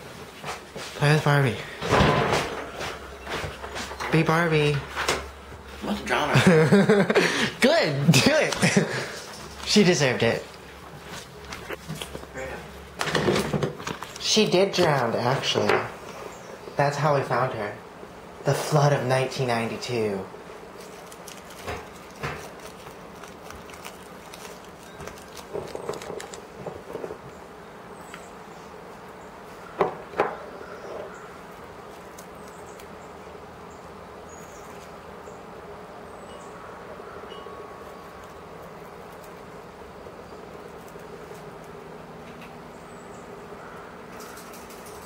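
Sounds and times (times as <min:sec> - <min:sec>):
steady low hum: 0:00.0 - 0:45.0
rustles: 0:20.4 - 0:29.7, 0:30.6 - 0:35.8, 0:37.8 - 0:42.7.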